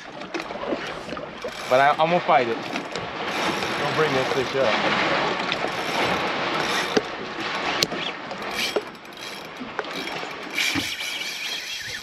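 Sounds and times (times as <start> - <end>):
fishing reel drag clicking: 6.6 - 7.1, 7.8 - 12.0.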